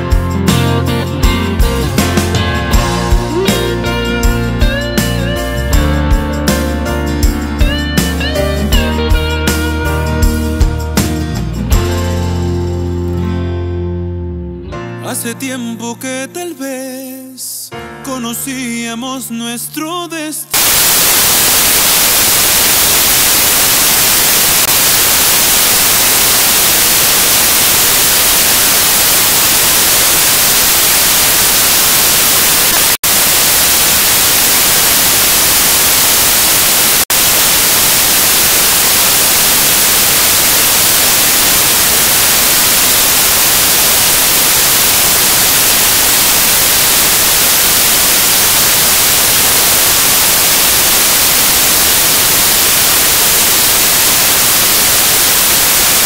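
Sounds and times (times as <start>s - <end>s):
static hiss: 0.0s - 0.9s, 20.5s - 56.0s.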